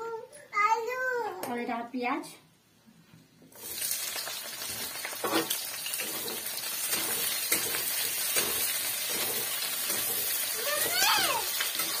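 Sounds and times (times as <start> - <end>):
onion sizzling in hot oil: 3.5 - 12.0.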